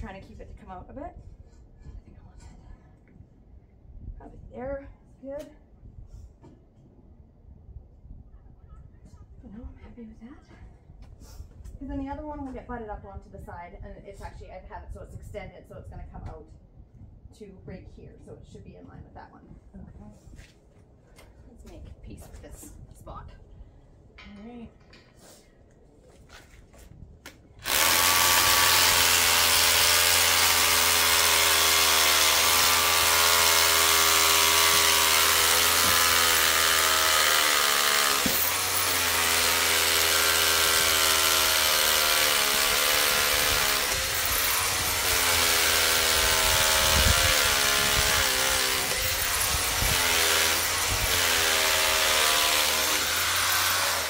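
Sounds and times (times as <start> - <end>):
hammer drill boring into concrete: 27.6 - 54.0.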